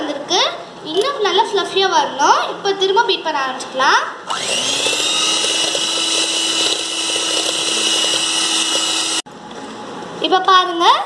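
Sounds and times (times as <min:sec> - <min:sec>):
electric hand mixer running: 0:04.3 - 0:09.3.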